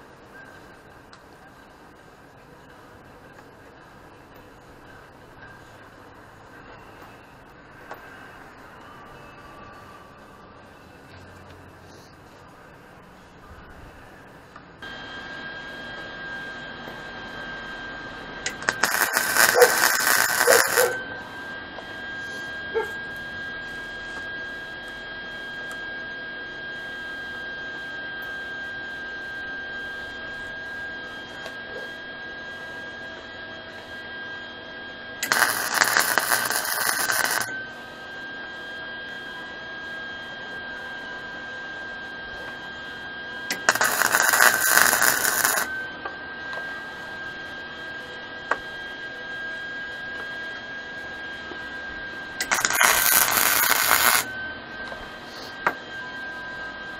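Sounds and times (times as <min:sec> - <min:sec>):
steady high whine: 0:00.0 - 0:56.9
welding arc crackling: 0:18.5 - 0:21.0, 0:35.2 - 0:37.5, 0:43.5 - 0:45.7, 0:52.4 - 0:54.3.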